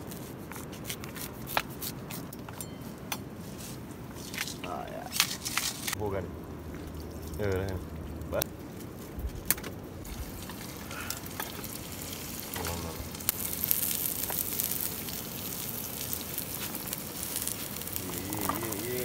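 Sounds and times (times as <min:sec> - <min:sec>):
onions sizzling in oil: 0:10.0 - 0:19.0.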